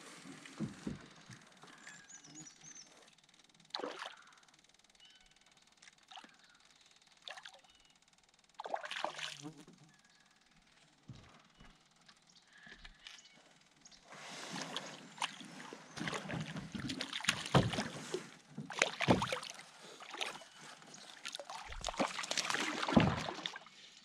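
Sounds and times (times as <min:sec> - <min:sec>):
water splashing: 0:03.7 - 0:04.2, 0:08.6 - 0:09.5, 0:14.4 - 0:23.8
knocks against canoe hull: 0:16.0 - 0:18.0, 0:18.6 - 0:19.4.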